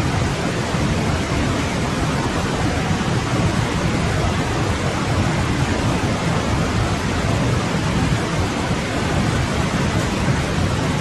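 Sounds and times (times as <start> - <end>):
stream flowing: 0.0 - 11.0.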